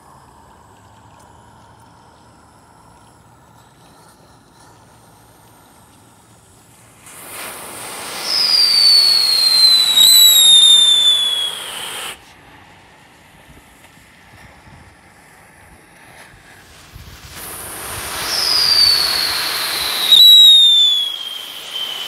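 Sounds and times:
firework hissing sparks: 6.8s - 12.2s, 16.1s - 22.0s
shrill firework whistle: 7.2s - 12.2s, 17.4s - 22.0s.

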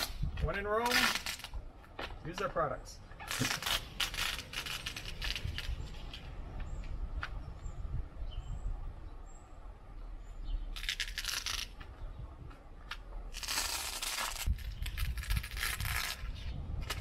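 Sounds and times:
plastic tape being peeled: 0.8s - 1.6s, 3.2s - 6.2s, 10.8s - 11.8s, 13.3s - 17.0s.

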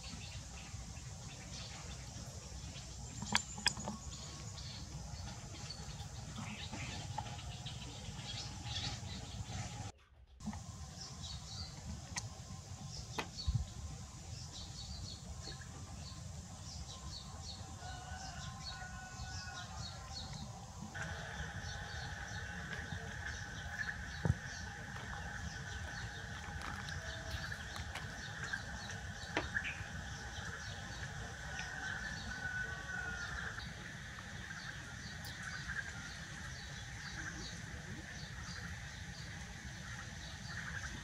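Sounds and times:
monkeys chewing and handling corn: 20.2s - 29.8s.

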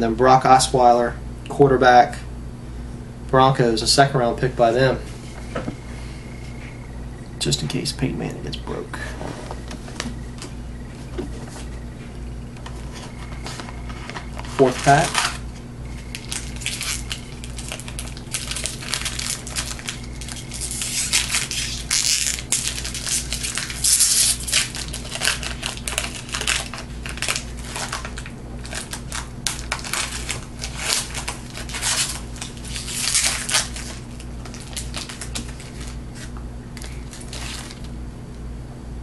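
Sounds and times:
low electrical hum: 0.0s - 39.0s
wrapper crackling and crumpling: 12.9s - 38.0s.

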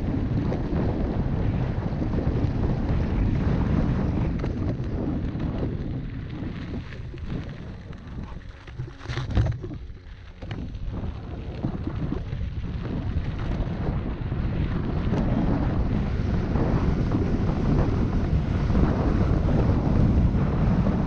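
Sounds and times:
mountain bike rumbling on dirt trail: 0.0s - 21.0s
wind buffeting microphone: 0.0s - 21.0s
bike jolting over bump: 3.4s - 13.7s.

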